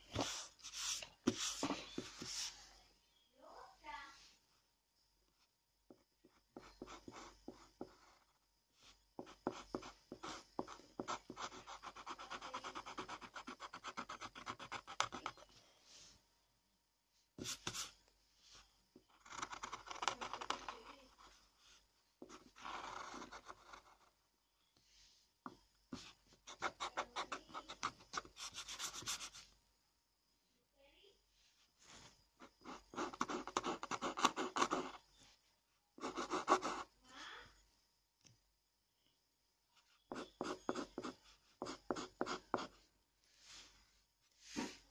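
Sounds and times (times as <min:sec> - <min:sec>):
pencil scratching on paper: 0:00.1 - 0:02.6, 0:06.2 - 0:15.5, 0:17.4 - 0:18.0, 0:19.0 - 0:24.1, 0:25.9 - 0:29.5, 0:32.4 - 0:35.2, 0:36.0 - 0:36.9, 0:39.9 - 0:42.8
eraser rubbing on paper: 0:00.2 - 0:02.6.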